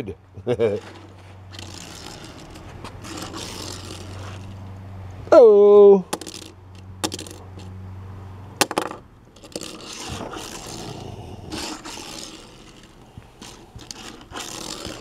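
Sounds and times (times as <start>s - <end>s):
toy car scraping on tabletop: 0.6s - 4.7s, 6.2s - 7.7s, 8.7s - 15.0s.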